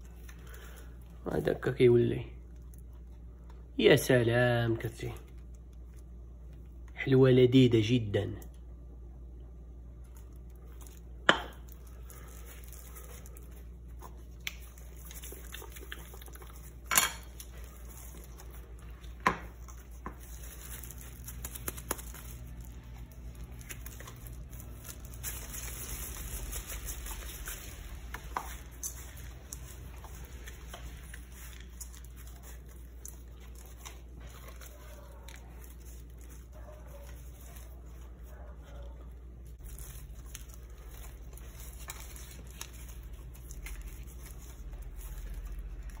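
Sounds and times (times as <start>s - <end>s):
low steady hum: 0.0s - 46.0s
gloved hands rubbing dough: 9.6s - 46.0s.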